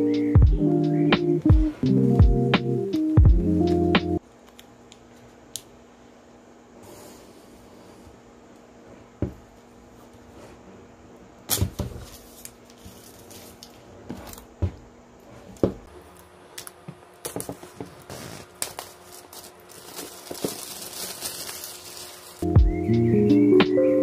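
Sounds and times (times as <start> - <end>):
plastic film crinkling: 11.8 - 14.5, 16.1 - 22.4.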